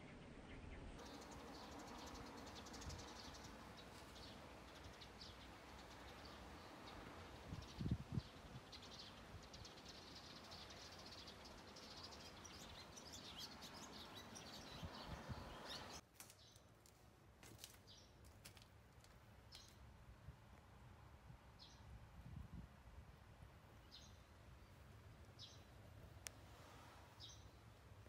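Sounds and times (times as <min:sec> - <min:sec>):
swallows twittering: 0:01.0 - 0:16.0.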